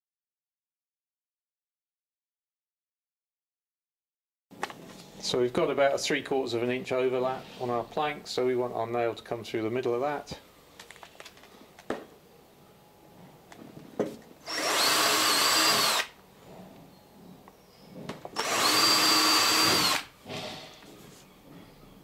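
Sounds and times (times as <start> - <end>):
cordless drill boring into wood: 14.4 - 16.2, 18.3 - 20.1.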